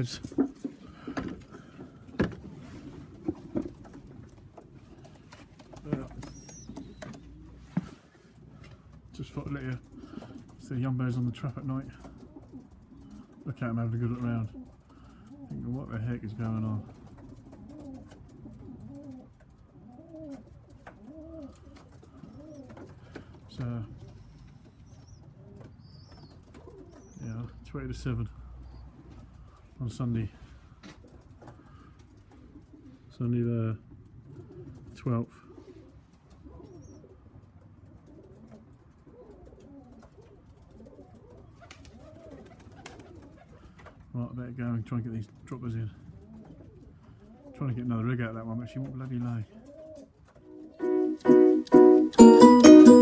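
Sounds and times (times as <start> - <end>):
pigeons cooing: 0.0 - 7.8, 9.8 - 10.6, 11.8 - 13.5, 14.4 - 15.8, 16.9 - 27.6, 30.9 - 33.1, 33.9 - 44.0, 46.0 - 47.7, 48.6 - 52.0.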